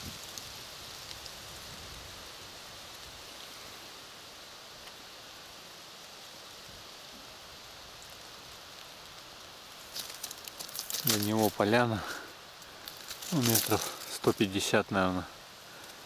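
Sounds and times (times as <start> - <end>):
faint high-pitched hiss: 0.0 - 16.0
soft ticks: 4.8 - 5.0.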